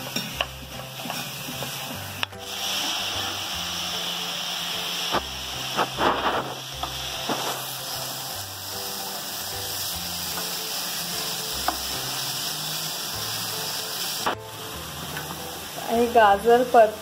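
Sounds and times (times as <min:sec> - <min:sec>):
carrots sizzling in oil: 0:00.0 - 0:17.0.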